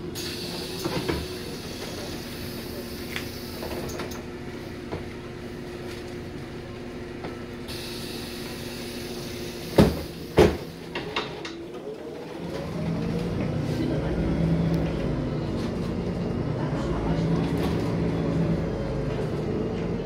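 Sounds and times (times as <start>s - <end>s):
bus engine idling: 0.0s - 20.0s
air hiss: 7.7s - 10.8s
bus doors thudding shut: 8.4s - 11.4s.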